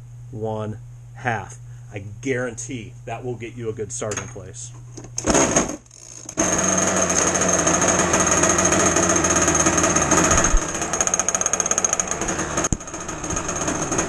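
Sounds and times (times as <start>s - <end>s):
two-stroke boat engine running: 6.4s - 14.0s.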